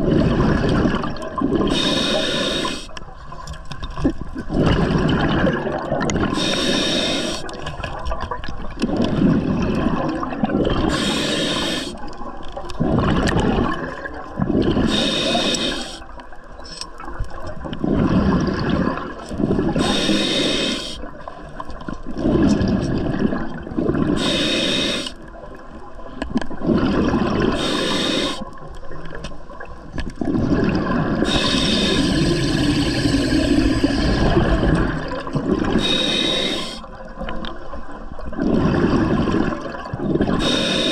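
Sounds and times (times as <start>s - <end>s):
exhaled bubbles rushing: 0.0s - 2.4s, 3.8s - 6.8s, 7.4s - 15.5s, 17.3s - 20.0s, 21.0s - 24.3s, 26.5s - 40.6s
regulator hissing on inhale: 1.7s - 3.0s, 6.3s - 7.6s, 10.9s - 12.0s, 14.8s - 16.1s, 19.8s - 21.1s, 24.2s - 25.2s, 27.5s - 28.5s, 31.2s - 34.1s, 35.7s - 36.9s, 40.4s - 40.9s.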